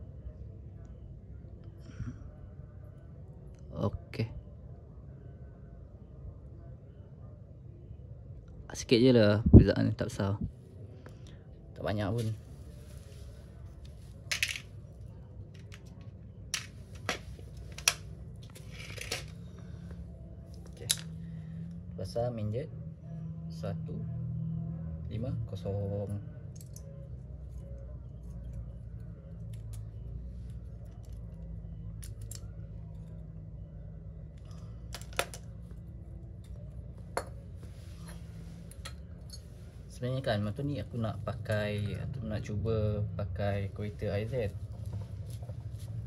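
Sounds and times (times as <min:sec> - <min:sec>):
steady low hum: 0:00.0 - 0:46.0
metal parts clicking on concrete: 0:15.5 - 0:19.4, 0:26.5 - 0:26.9, 0:30.8 - 0:33.1, 0:34.4 - 0:35.8
small parts clicking on concrete: 0:26.5 - 0:27.0, 0:30.5 - 0:33.2, 0:34.3 - 0:35.8.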